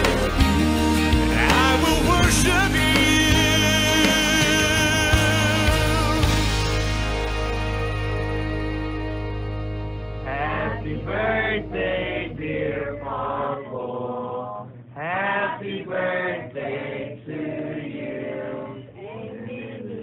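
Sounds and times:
soft background music: 0.0 - 13.8
people singing a birthday tune together: 1.4 - 6.3, 10.2 - 20.0.

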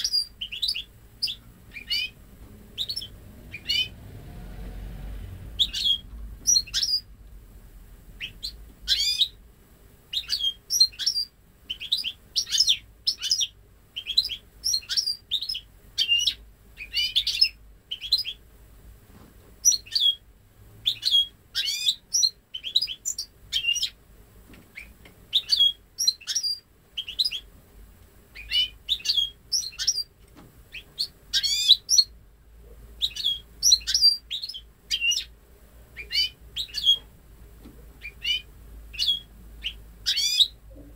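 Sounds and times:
finch twittering song: 0.0 - 4.0, 5.5 - 7.1, 8.2 - 9.4, 10.1 - 18.4, 19.6 - 20.2, 20.8 - 24.0, 24.7 - 27.5, 28.3 - 32.2, 33.0 - 35.4, 36.0 - 37.1, 38.0 - 40.6.

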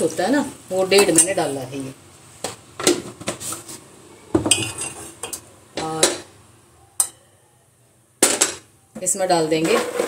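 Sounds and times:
metal spoon clinking on pan: 7.0 - 7.2.

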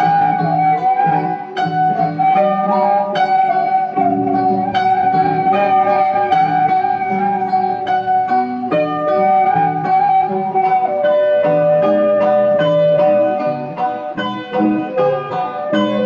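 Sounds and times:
bamboo flute long note: 0.0 - 16.0
zither plucking notes: 0.0 - 16.0.

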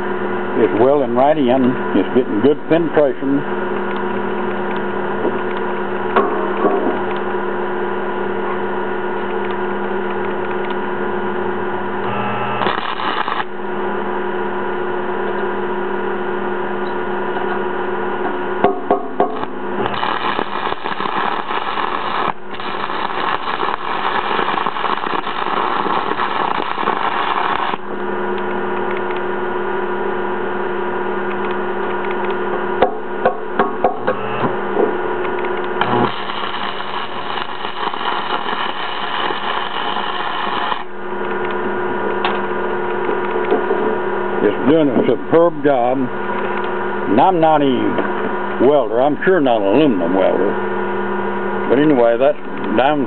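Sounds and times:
welder humming: 0.0 - 53.0
welding arc crackling hiss: 12.1 - 13.6, 19.2 - 28.0, 35.3 - 41.4.

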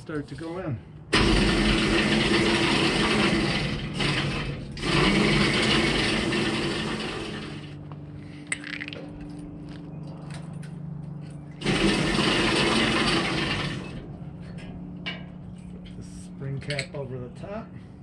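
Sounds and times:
hose reel motor whirring: 1.1 - 7.8, 11.6 - 14.0.

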